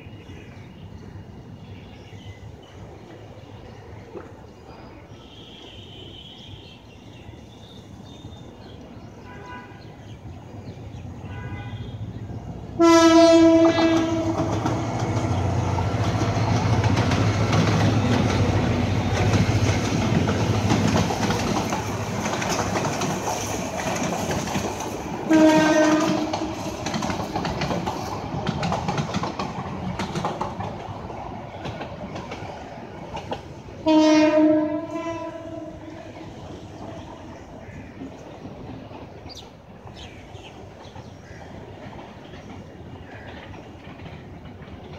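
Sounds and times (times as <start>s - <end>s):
freight train rumbling past: 0.0s - 44.9s
locomotive horn blasts: 11.3s - 12.1s, 12.8s - 14.7s, 25.3s - 26.6s, 33.8s - 35.9s.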